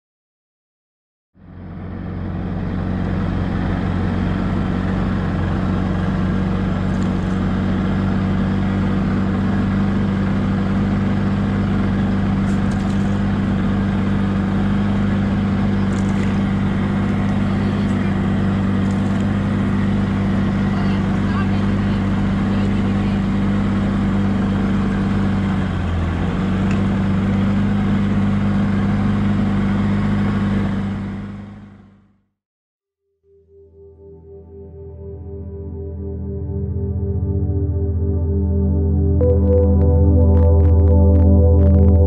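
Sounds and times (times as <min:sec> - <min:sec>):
outboard motor running: 0:01.4 - 0:32.1.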